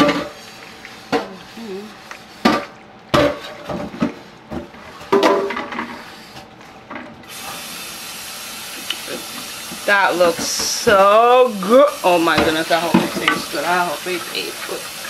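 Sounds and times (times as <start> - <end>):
colander knocking on skillet: 12.2 - 13.6.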